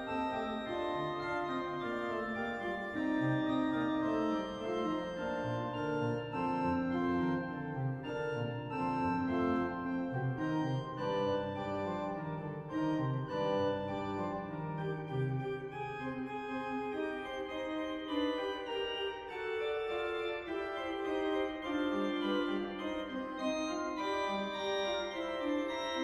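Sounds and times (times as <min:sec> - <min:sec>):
pipe organ playing a fugue: 0:00.0 - 0:26.0.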